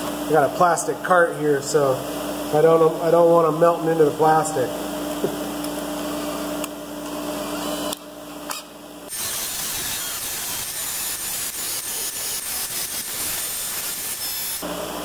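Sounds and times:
motor hum: 4.8s - 15.0s.

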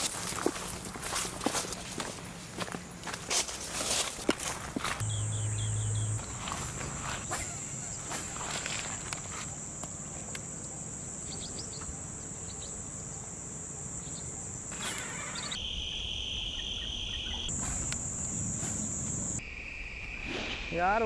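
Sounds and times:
insects chirring: 0.0s - 21.0s
lower-pitched chirring: 5.0s - 8.0s.

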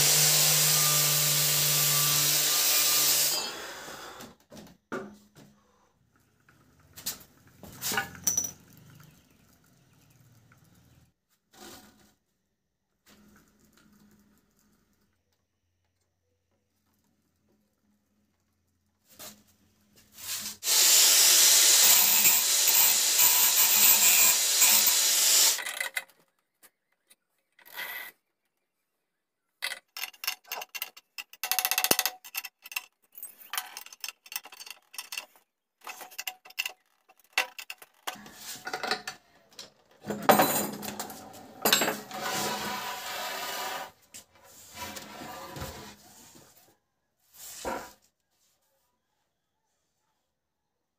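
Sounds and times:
power tool running: 0.0s - 4.3s, 20.6s - 25.7s.

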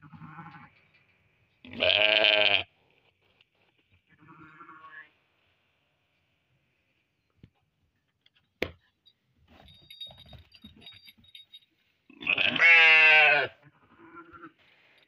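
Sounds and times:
sheep bleating: 0.0s - 0.7s, 1.7s - 2.7s, 4.1s - 5.1s, 12.1s - 14.6s.

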